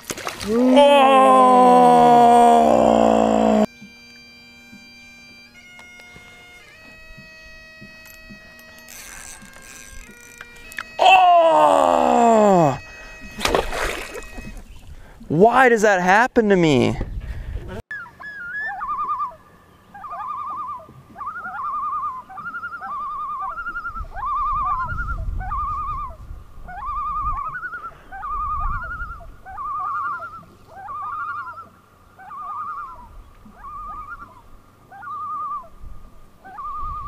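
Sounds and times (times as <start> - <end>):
loon calling: 0.5 - 3.7, 10.7 - 13.4, 17.9 - 35.8, 36.4 - 37.0.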